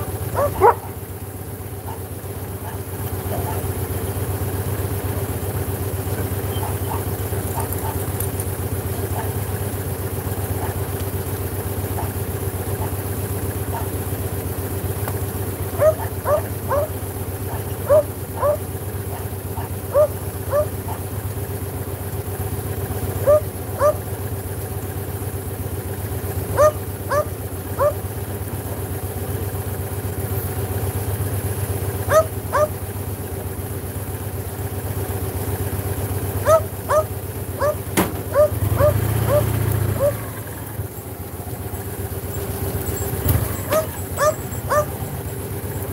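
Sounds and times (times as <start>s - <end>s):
motorcycle engine idling: 0.0s - 45.9s
dog yipping: 0.3s - 1.0s, 1.9s - 3.7s, 6.4s - 8.0s, 9.0s - 9.4s, 11.9s - 12.2s, 13.7s - 14.0s, 15.7s - 21.0s, 23.2s - 24.0s, 26.6s - 28.0s, 32.1s - 32.8s, 36.4s - 40.3s, 42.4s - 45.3s.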